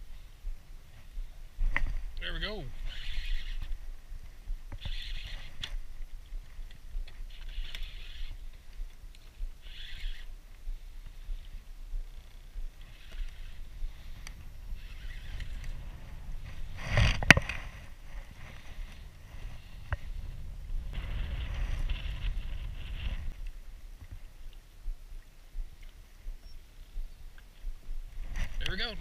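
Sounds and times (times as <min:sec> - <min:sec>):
rod and reel handling noise: 0:00.0 - 0:24.8, 0:25.5 - 0:29.0
wind on microphone: 0:00.0 - 0:29.0
rough rustle: 0:02.7 - 0:23.7.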